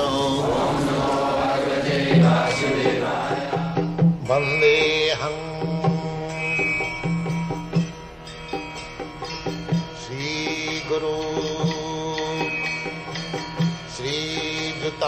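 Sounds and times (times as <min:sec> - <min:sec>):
steady drone: 0:00.0 - 0:04.2
person chanting: 0:00.0 - 0:05.8.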